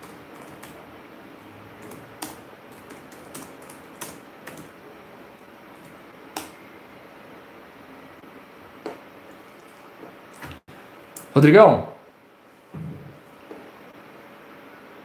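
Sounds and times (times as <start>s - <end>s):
low room hiss: 0.0s - 15.0s
computer keyboard clicks: 1.8s - 4.7s.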